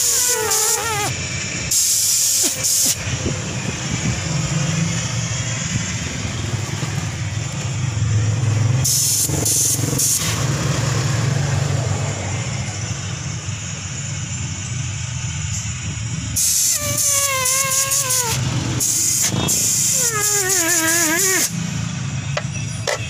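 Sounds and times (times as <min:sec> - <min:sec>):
compressed air hissing from hose: 0:00.0 - 0:07.3, 0:08.8 - 0:10.5, 0:16.4 - 0:21.8.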